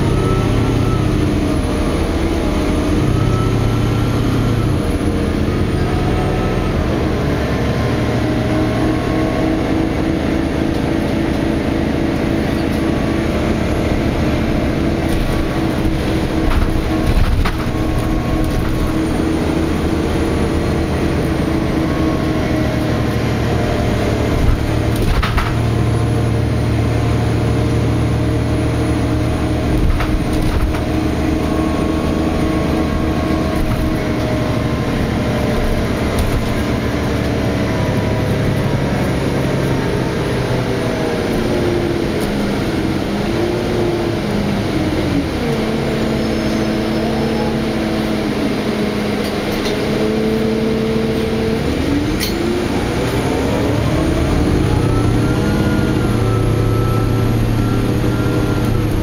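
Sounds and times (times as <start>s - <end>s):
bus diesel engine drone: 0.0s - 59.0s
road noise: 0.0s - 59.0s
body clunks and rattles: 14.9s - 19.6s, 24.2s - 25.9s, 29.6s - 31.2s, 32.4s - 37.4s.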